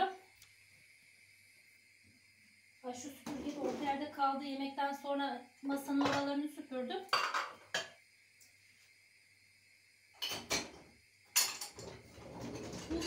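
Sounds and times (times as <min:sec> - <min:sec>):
ceramic dishes clattering: 0:07.2 - 0:07.9.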